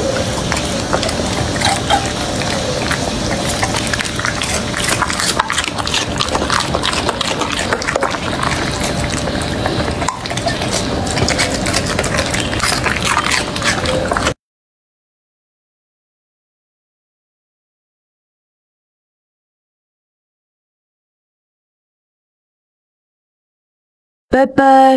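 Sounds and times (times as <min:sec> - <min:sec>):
dog chewing and slurping: 0:00.0 - 0:14.4.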